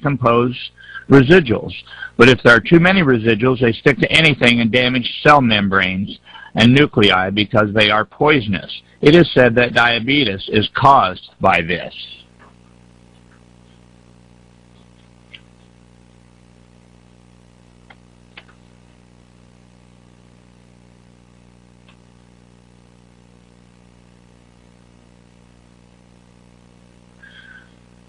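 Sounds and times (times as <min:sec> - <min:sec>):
electrical hum with hiss: 0:00.0 - 0:28.0.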